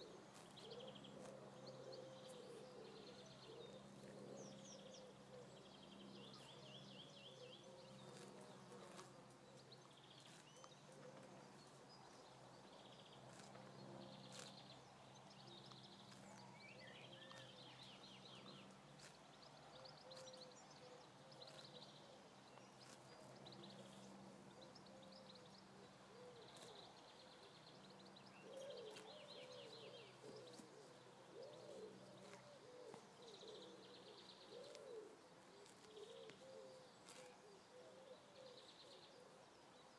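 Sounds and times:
small birds chirping: 0.0 - 39.9
wavering bird calls: 28.3 - 39.3.

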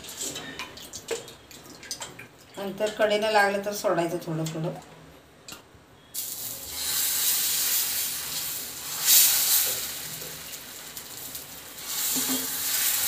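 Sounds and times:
batter sizzling in a hot pan: 6.2 - 13.0.

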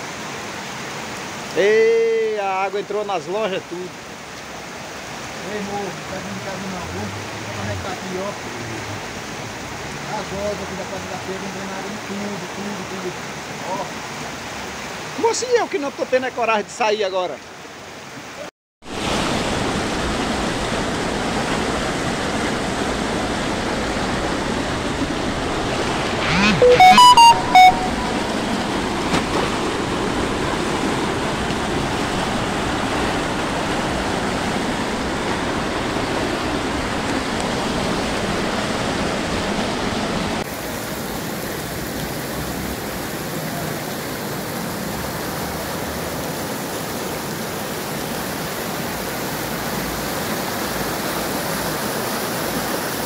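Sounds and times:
floodwater rushing: 0.0 - 53.0
brief pitched sound: 26.2 - 28.6.

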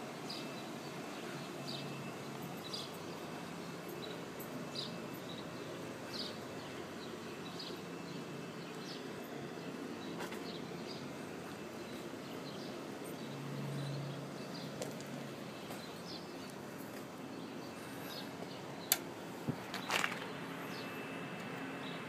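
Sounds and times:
sharp clicks: 18.9 - 19.1.

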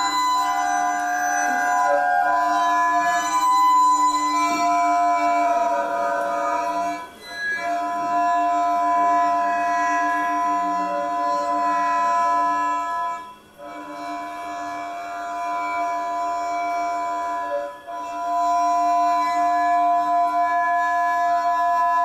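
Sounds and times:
stroked strings sustained drone: 0.0 - 22.0.

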